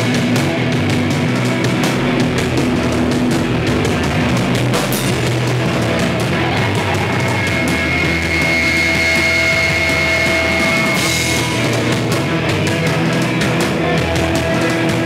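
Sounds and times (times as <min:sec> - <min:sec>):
punk rock band playing: 0:00.0 - 0:15.0
high held note: 0:01.6 - 0:11.3.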